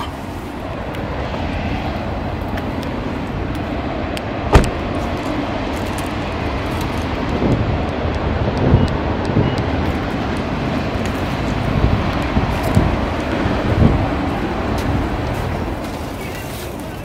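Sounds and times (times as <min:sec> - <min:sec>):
steady low rumble: 0:00.0 - 0:16.2
car door thud: 0:04.5 - 0:04.8.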